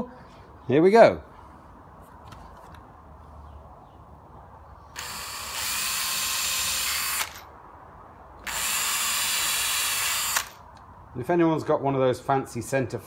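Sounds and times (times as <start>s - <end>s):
cordless drill drilling wood: 4.9s - 7.5s, 8.4s - 10.6s.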